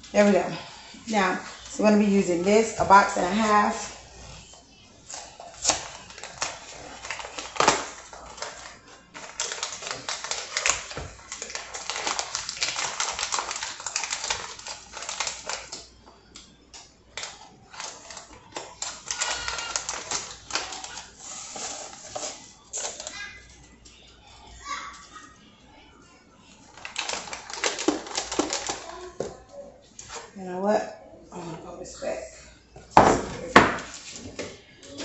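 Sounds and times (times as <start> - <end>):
kitchen rustling: 0.0 - 25.4, 26.0 - 35.0.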